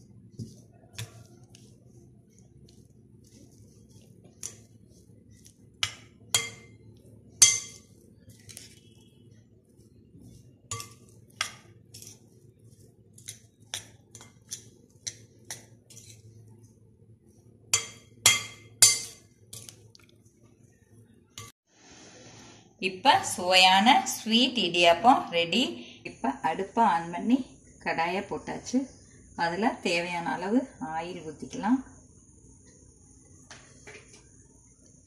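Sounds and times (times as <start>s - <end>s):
metal spoon scraping glass bowl: 10.4s - 12.3s, 13.2s - 16.3s, 17.7s - 19.7s.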